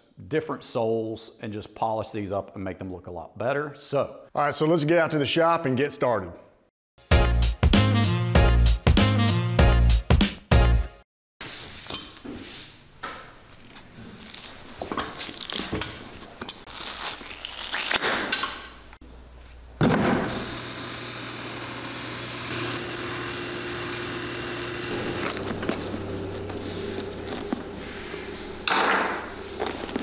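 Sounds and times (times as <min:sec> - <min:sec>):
machine humming: 0:20.2 - 0:30.0
boot sole scraping and tearing: 0:24.9 - 0:28.0, 0:29.4 - 0:30.0.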